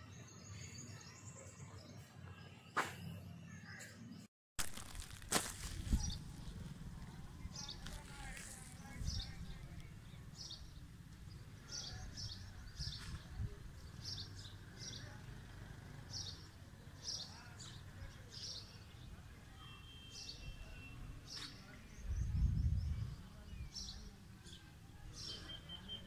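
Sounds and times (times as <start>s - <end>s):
small birds chirping: 0.0s - 26.0s
steady low rumble: 5.0s - 11.0s.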